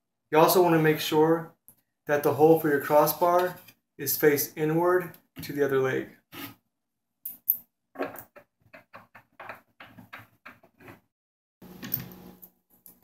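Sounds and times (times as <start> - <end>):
knocks and rubbing: 8.0 - 11.1.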